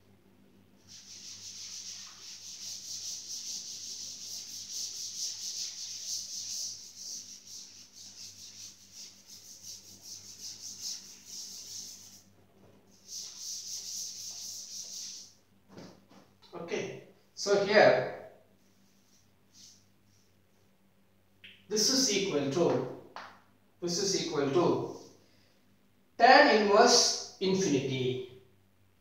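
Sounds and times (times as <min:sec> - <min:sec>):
faint steady hum: 0:00.0 - 0:29.0
cloth wiping chalkboard: 0:00.8 - 0:16.3, 0:18.6 - 0:20.4.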